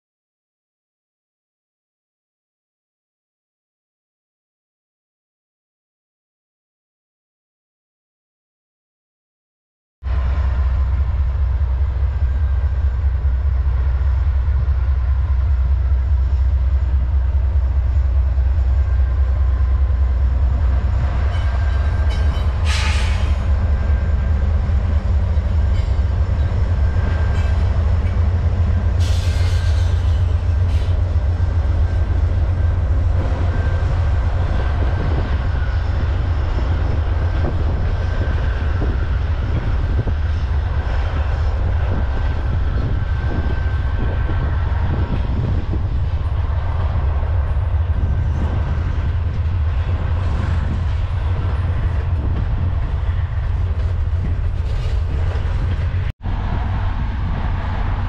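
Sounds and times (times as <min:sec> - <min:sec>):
diesel locomotive rumble: 0:10.0 - 0:58.0.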